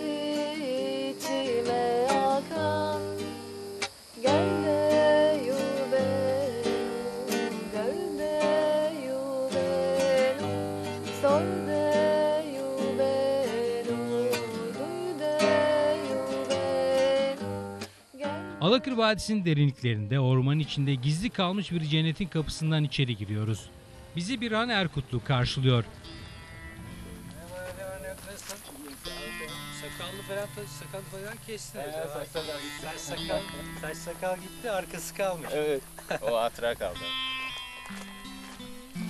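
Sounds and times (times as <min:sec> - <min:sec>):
woman singing: 0:00.0 - 0:19.0
guitar strummed: 0:25.5 - 0:39.0.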